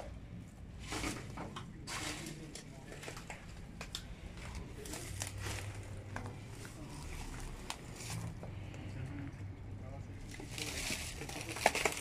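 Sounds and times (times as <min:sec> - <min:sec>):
crackles and snaps: 0:10.4 - 0:12.0.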